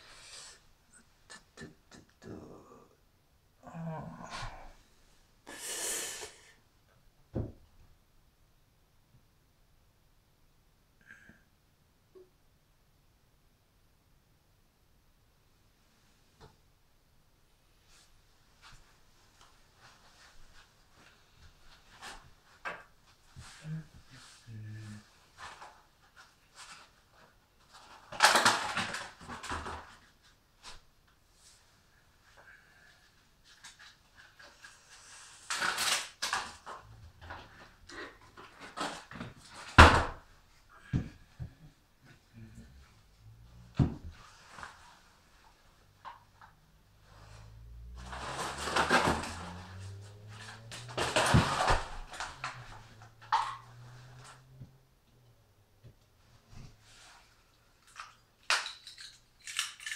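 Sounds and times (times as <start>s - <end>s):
rustling and crackling material: 17.7s - 54.4s.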